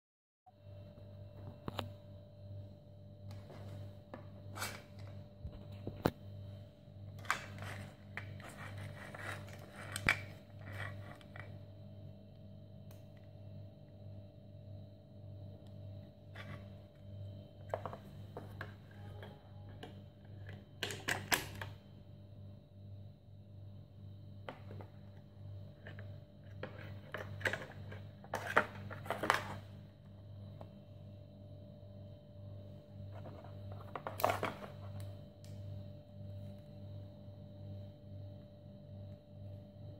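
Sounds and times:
steady low hum: 0.5s - 39.9s
cables scraping and rustling: 7.2s - 11.6s.

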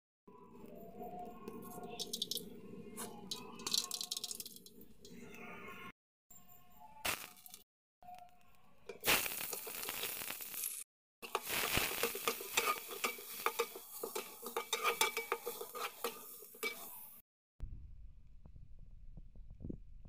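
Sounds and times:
metal spatula scraping pot: 1.6s - 5.3s, 11.2s - 17.2s
onions sizzling in hot oil: 7.1s - 7.6s, 9.0s - 17.2s.

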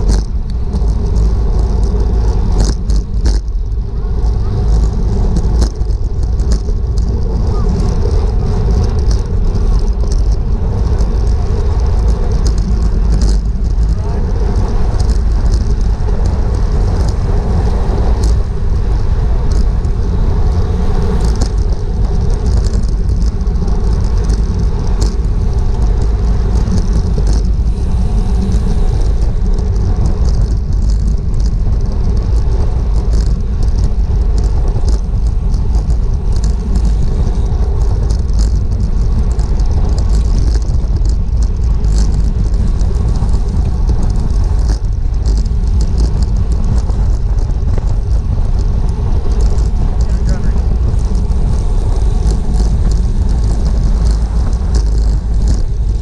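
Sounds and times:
sharp ticks and clicks: 0.0s - 56.0s
wind rumbling on microphone: 0.0s - 56.0s.

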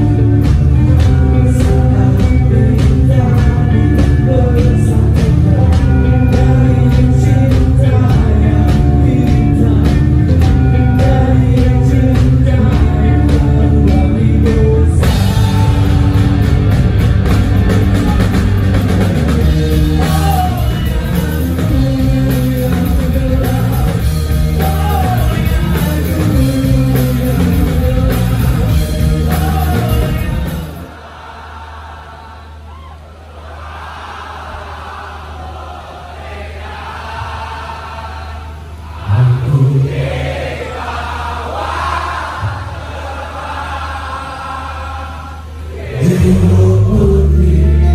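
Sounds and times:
rock band playing live: 0.0s - 31.0s
person singing: 19.7s - 30.6s, 45.8s - 47.9s.

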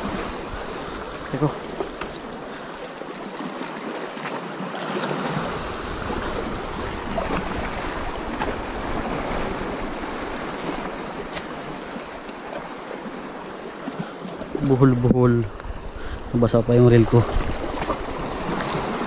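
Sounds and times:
small waves lapping: 0.0s - 19.0s
wind rumble on microphone: 5.3s - 11.9s, 14.5s - 19.0s.

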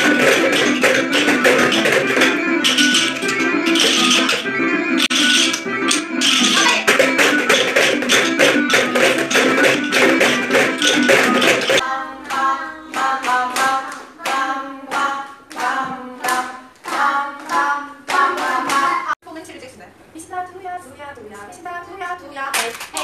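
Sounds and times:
rhythm sticks tapping: 0.0s - 19.1s
children's music: 0.0s - 19.2s.

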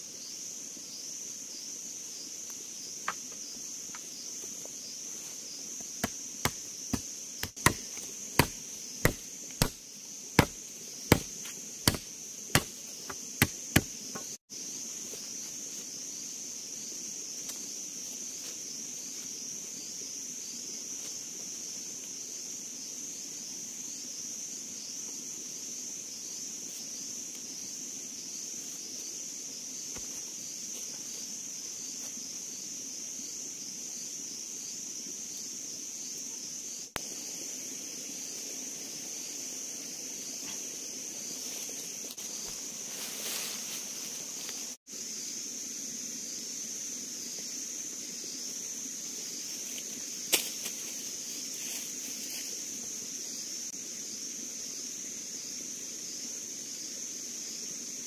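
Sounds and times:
insects droning: 0.0s - 58.0s
machete chopping wood: 6.0s - 9.8s, 10.4s - 14.3s.

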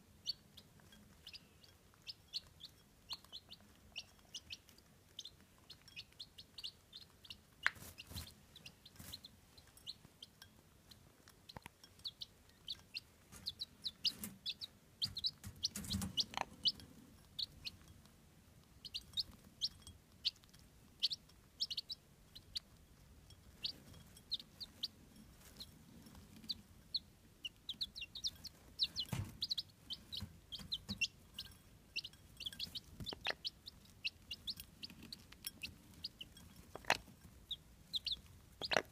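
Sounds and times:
chicks peeping: 0.0s - 38.9s
hen clucking softly: 11.5s - 17.8s, 21.0s - 22.7s, 26.4s - 38.9s.

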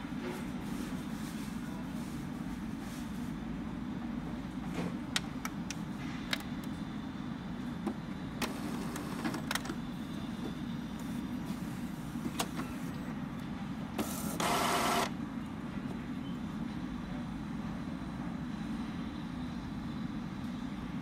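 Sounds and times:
printer low hum: 4.9s - 21.0s.

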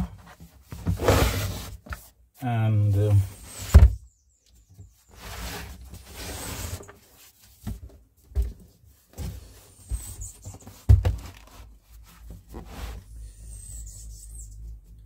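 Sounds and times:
dull knocks on cardboard: 10.8s - 11.3s.

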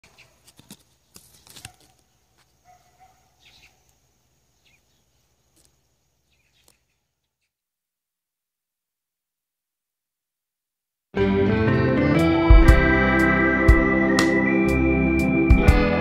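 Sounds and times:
bird chirps: 2.1s - 5.6s, 6.2s - 7.5s.

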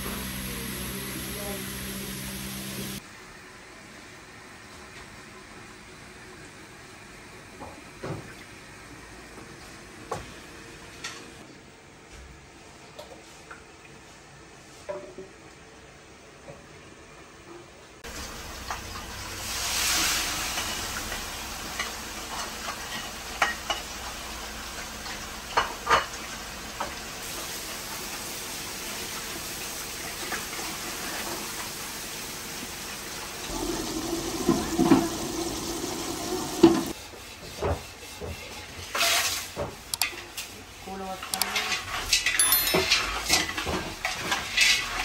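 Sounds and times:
carrot sizzling in hot oil: 0.0s - 3.0s, 18.0s - 42.4s.

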